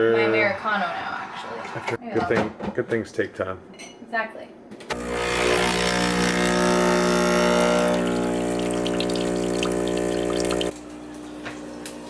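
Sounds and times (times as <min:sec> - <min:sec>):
espresso machine pump humming: 0:04.9 - 0:12.0
coffee pouring into a glass: 0:07.2 - 0:11.9.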